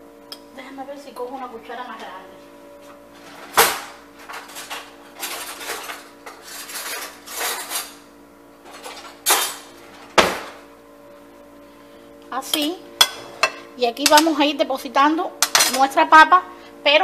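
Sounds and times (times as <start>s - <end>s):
cutlery and dishes clattering: 3.2s - 8.0s, 8.7s - 9.7s, 15.4s - 15.9s.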